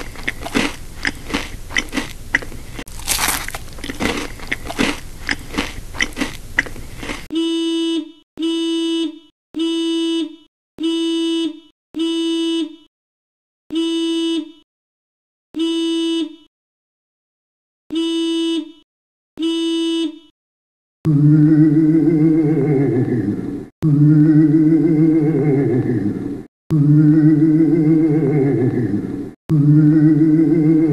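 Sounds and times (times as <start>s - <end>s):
crunching bites into apple: 0.0s - 7.3s
car horn blasts: 7.3s - 12.9s, 13.7s - 14.6s, 15.6s - 16.5s, 17.9s - 18.8s, 19.4s - 20.3s.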